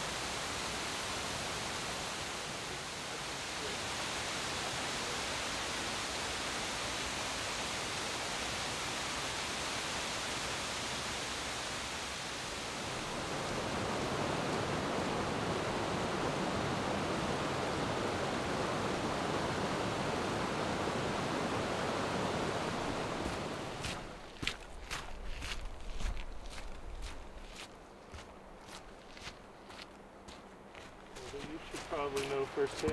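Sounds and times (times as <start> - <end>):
waterfall rushing: 0.0 - 24.2
creek rushing: 0.0 - 29.5, 30.6 - 32.9.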